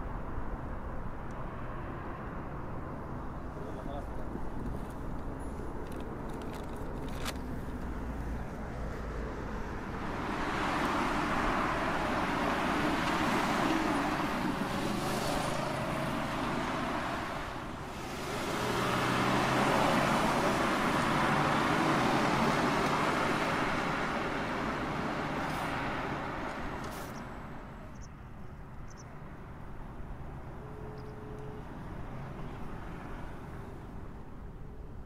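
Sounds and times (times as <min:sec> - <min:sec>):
cars passing: 0:00.0 - 0:35.0.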